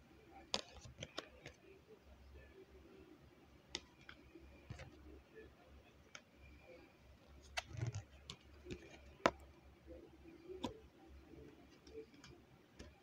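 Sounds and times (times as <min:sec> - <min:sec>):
cards clicking and tapping: 0:00.5 - 0:01.6, 0:03.8 - 0:05.0, 0:07.3 - 0:09.5, 0:11.7 - 0:13.0.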